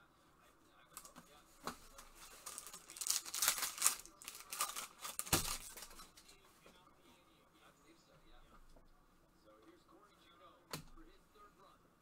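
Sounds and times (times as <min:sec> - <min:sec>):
wrapper crinkling: 0:02.2 - 0:06.2
foil pack tearing open: 0:02.3 - 0:06.0.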